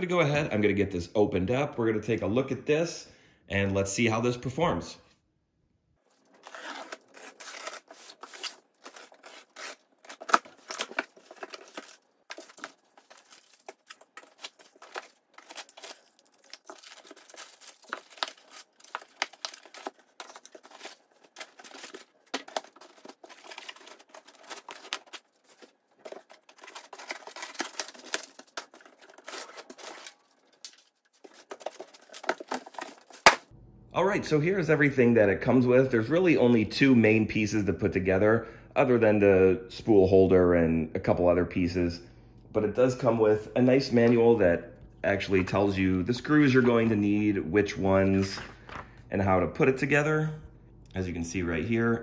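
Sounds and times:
cardboard and foam rustling: 6.1s - 33.5s
packing tape tearing: 6.1s - 33.5s.

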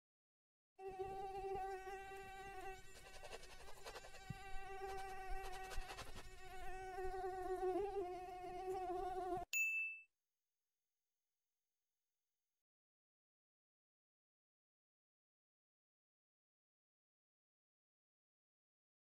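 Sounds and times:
mosquito whining: 0.8s - 9.5s.

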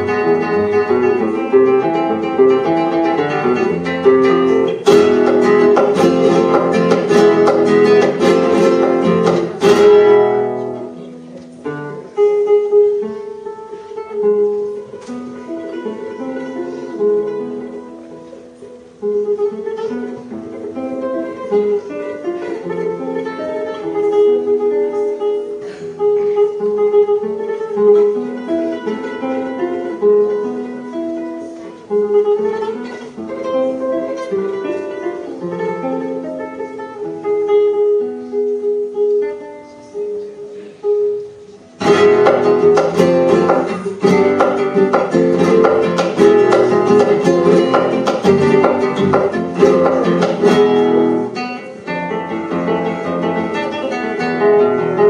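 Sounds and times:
loud strummed guitar chords: 0.0s - 10.8s, 41.8s - 55.0s
classical guitar plucked notes: 0.0s - 55.0s.

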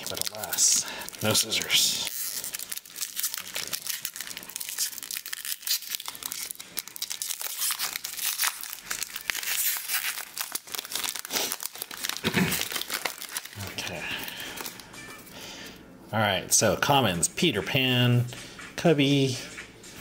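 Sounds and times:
foil wrapper crinkling and tearing: 0.0s - 14.9s.

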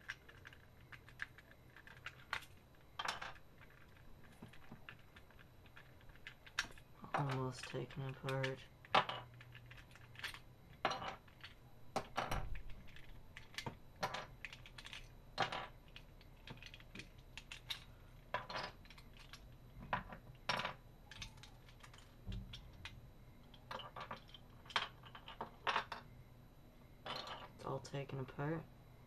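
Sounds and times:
pieces knocking on wooden table: 8.9s - 9.3s, 15.4s - 15.7s, 19.8s - 21.3s.

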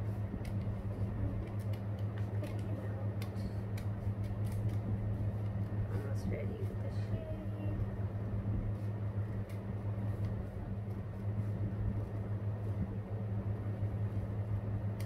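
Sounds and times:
steady low hum: 0.0s - 15.0s
scissors cutting paper: 0.4s - 6.8s.

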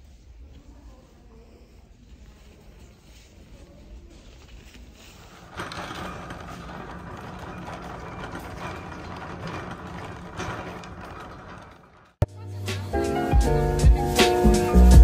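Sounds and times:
shopping cart rattling on concrete: 4.6s - 12.2s.

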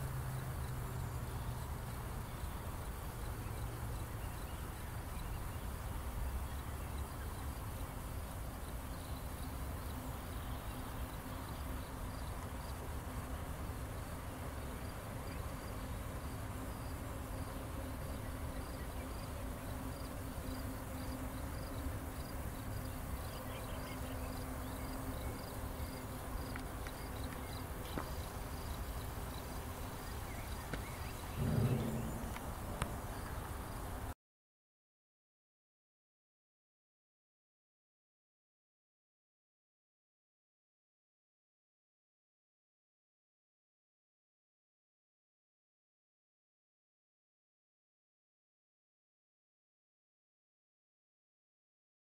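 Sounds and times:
low ambient rumble and hiss: 0.0s - 34.1s.

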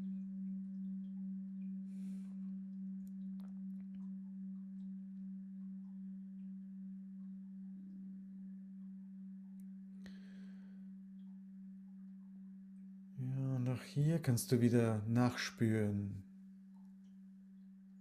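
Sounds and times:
singing bowl ringing: 0.0s - 13.2s.

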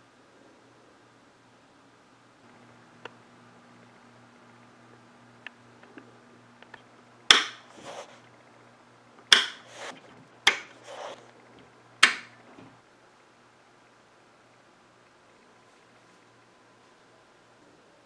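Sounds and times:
faint low hum: 0.0s - 18.0s
toggle switch clicks: 7.3s - 7.6s, 9.3s - 9.6s, 12.0s - 12.4s.

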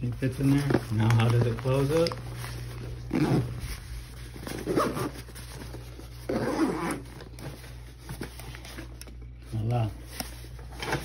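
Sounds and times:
zipper being pulled closed: 3.0s - 5.3s, 6.2s - 7.2s.

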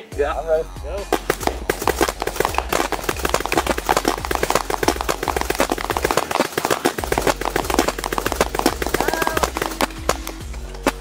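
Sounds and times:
paintball guns popping: 1.0s - 11.0s
paintballs smacking target: 1.1s - 11.0s.

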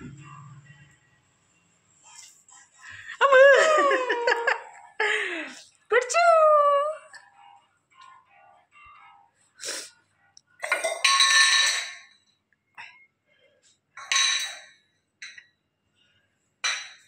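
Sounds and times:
metal tumbler clanking on tile floor: 10.6s - 12.3s, 14.0s - 15.4s.

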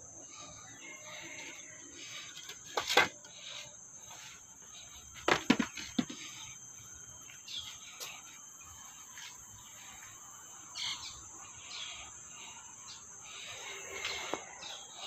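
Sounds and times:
high-pitched insect drone: 0.0s - 15.0s
sharp knocks and clunks: 5.2s - 6.4s.

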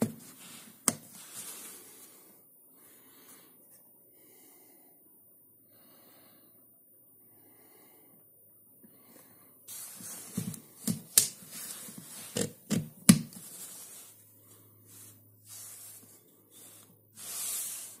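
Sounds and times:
plastic sliding and rubbing: 0.0s - 2.1s, 9.7s - 18.0s.

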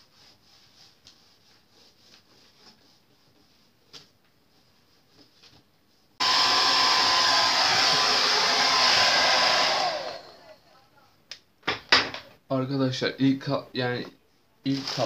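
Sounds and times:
hair dryer blowing: 6.2s - 10.6s.

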